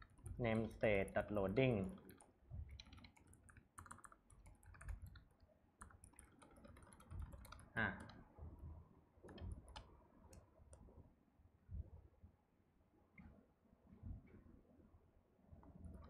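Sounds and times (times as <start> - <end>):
typing on computer keyboard: 0.0 - 8.2, 9.3 - 10.4.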